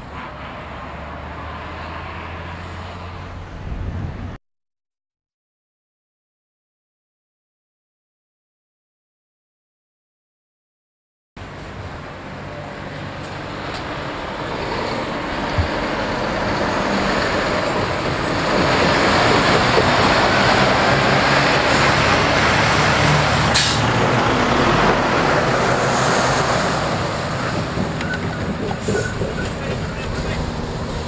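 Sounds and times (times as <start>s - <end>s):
diesel trucks driving past: 0.0s - 4.4s, 11.4s - 31.0s
tyre and road noise: 11.4s - 31.0s.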